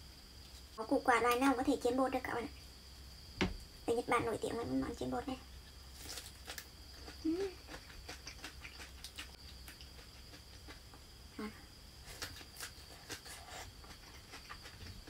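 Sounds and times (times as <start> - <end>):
person chewing crunchy food: 5.9 - 11.1, 12.0 - 15.0
person humming: 7.2 - 7.6, 11.4 - 11.6.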